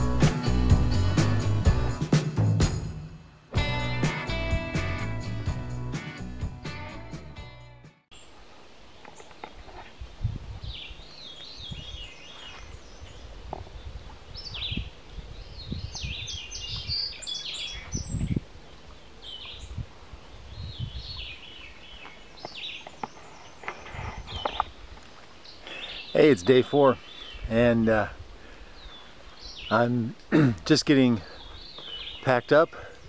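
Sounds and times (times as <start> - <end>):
songbirds chirping: 8.1 - 33.0.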